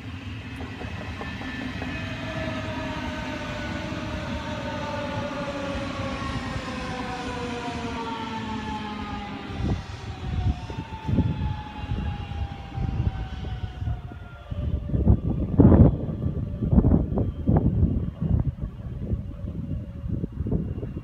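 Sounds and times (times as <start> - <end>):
electric train whine falling: 0.0 - 6.3
train wheels rumbling on rails: 0.0 - 21.0.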